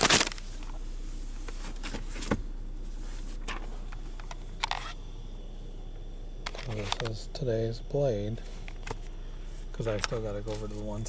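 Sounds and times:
newspaper rustling: 0.0 - 0.4
steady low hum: 0.0 - 11.0.

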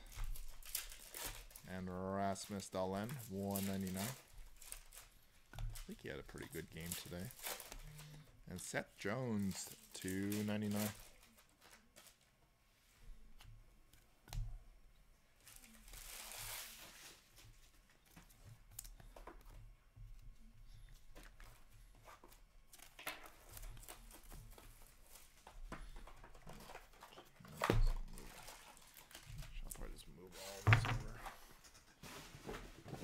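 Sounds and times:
trading cards rustling and tapping: 2.2 - 8.2, 9.1 - 12.2, 21.0 - 29.9.

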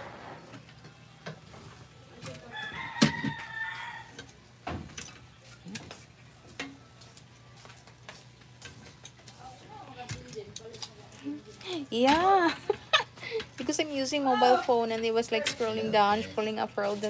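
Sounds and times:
rooster crowing: 2.4 - 4.3.

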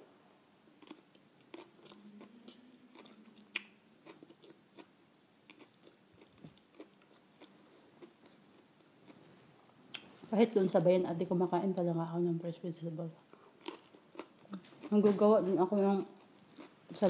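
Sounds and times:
person chewing crunchy vegetables: 0.8 - 9.2, 13.3 - 15.1, 16.2 - 17.0.

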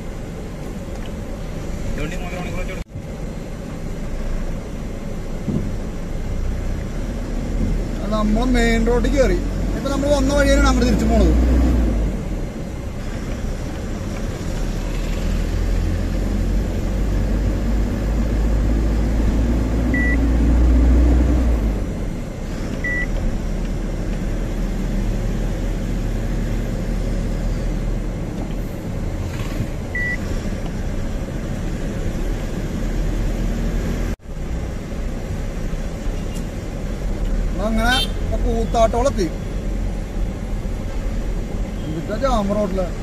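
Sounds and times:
truck diesel engine rumble: 0.0 - 43.0
short high beeps: 30.0 - 30.2.

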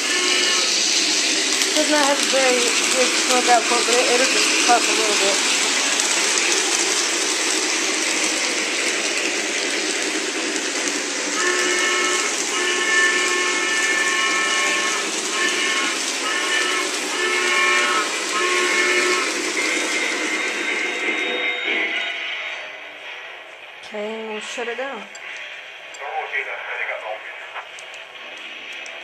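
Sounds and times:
model train steam whistle: 0.0 - 5.4, 11.3 - 22.6
recorded steam hiss: 0.0 - 29.0.

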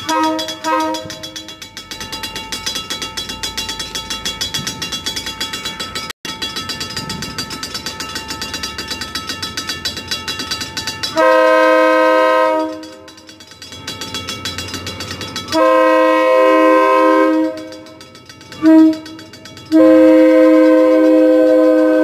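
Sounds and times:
train horn blast: 0.0 - 1.4, 11.2 - 13.1, 15.5 - 17.9, 18.6 - 22.0
level crossing bell ringing: 0.0 - 21.9.

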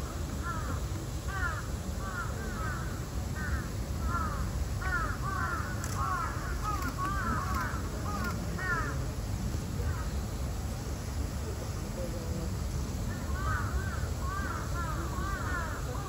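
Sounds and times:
birds calling: 0.0 - 9.0, 13.0 - 16.0.

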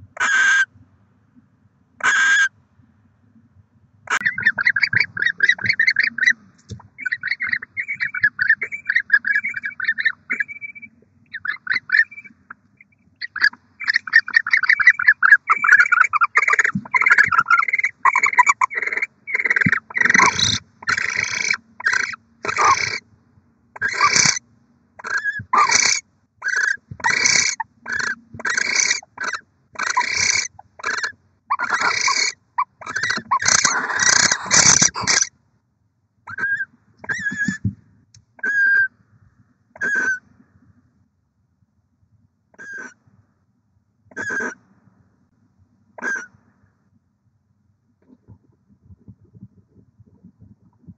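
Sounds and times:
owl screech calls: 0.2 - 0.7, 2.0 - 2.5, 4.1 - 23.0, 23.8 - 24.4, 25.0 - 35.3, 36.3 - 37.6, 38.4 - 38.9, 39.8 - 40.2, 42.6 - 43.0, 44.1 - 44.6, 46.0 - 46.3
owls twittering: 0.2 - 0.7, 2.0 - 2.5, 4.1 - 23.0, 23.8 - 24.4, 25.0 - 35.3, 36.3 - 37.7, 38.4 - 38.9, 39.8 - 40.2, 42.6 - 43.0, 44.1 - 44.6, 46.0 - 46.3.

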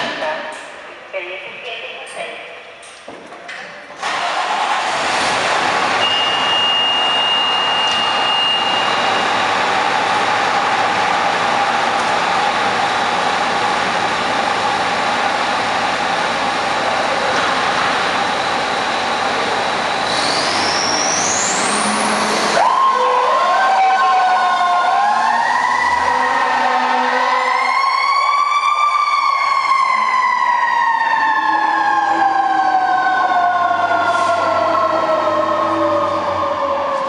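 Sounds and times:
fire engine running with whine: 4.0 - 37.0
fire engine siren: 5.1 - 12.7, 21.0 - 37.0.

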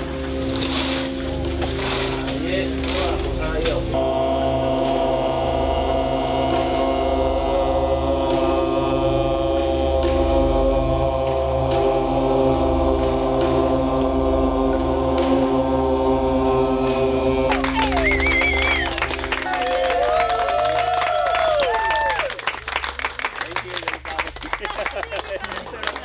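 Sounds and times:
droning chant: 0.0 - 22.4
applause and cheering: 17.4 - 26.0.

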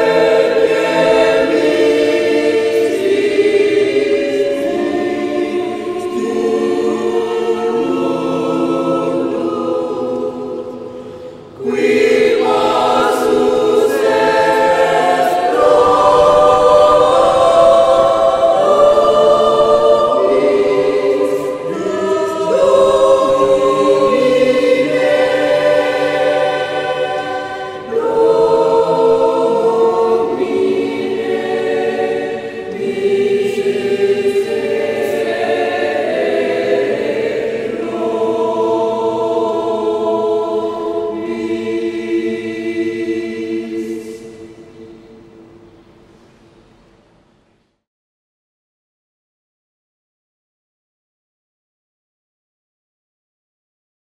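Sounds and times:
mixed choir singing: 0.0 - 46.1.

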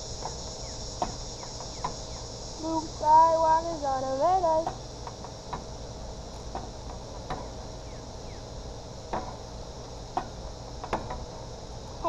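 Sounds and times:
insects chirping: 0.0 - 12.0.

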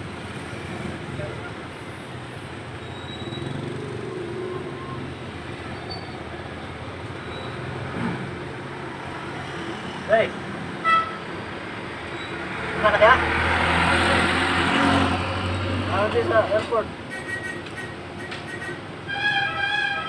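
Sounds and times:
motorcycle engines passing: 0.0 - 19.1.

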